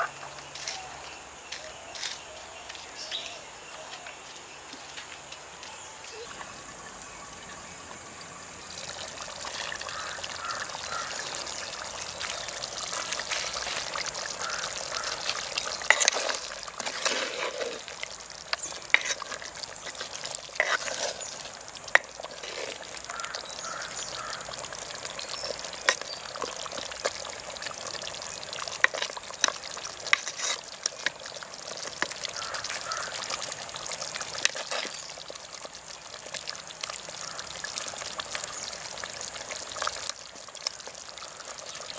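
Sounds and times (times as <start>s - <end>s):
curry simmering and bubbling: 6.1s - 41.9s.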